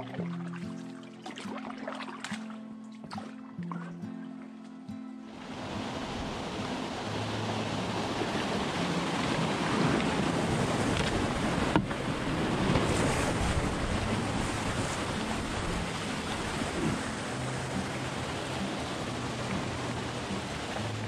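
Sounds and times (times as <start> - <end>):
canoe sliding: 5.2 - 21.0
water rushing down a chute: 5.4 - 21.0.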